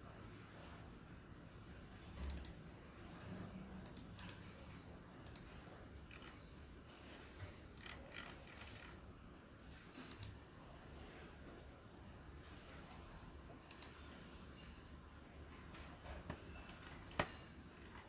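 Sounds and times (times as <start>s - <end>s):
faint small clicks: 2.2s - 2.6s, 5.2s - 5.6s, 10.0s - 10.4s, 13.6s - 14.0s.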